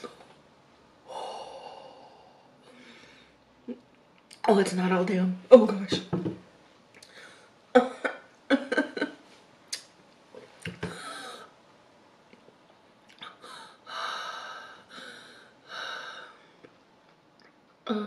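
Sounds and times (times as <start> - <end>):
woman breathing hard: 1.1 - 3.4, 13.3 - 16.6.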